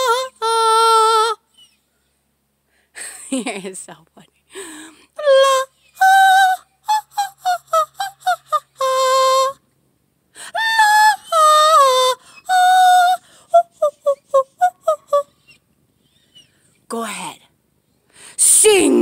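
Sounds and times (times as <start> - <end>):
person singing high wordless tune: 5.2 - 9.6, 10.4 - 15.3.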